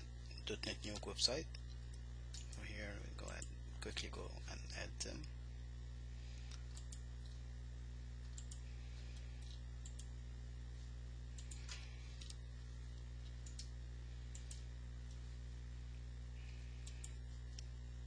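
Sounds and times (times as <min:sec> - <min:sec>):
low electrical hum: 0:00.0 - 0:18.0
computer mouse clicking: 0:06.5 - 0:07.4, 0:08.2 - 0:08.6, 0:13.4 - 0:13.7, 0:14.3 - 0:14.7, 0:16.8 - 0:17.7.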